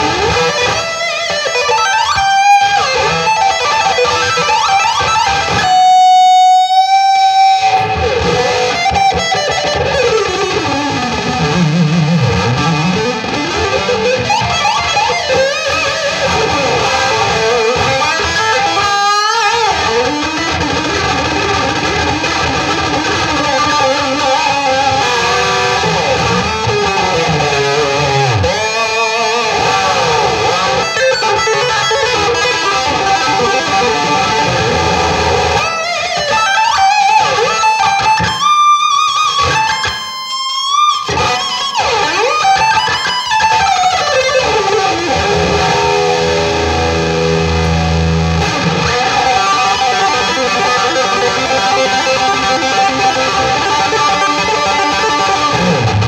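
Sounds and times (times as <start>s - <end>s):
distorted electric guitar lead: 0.0s - 56.0s.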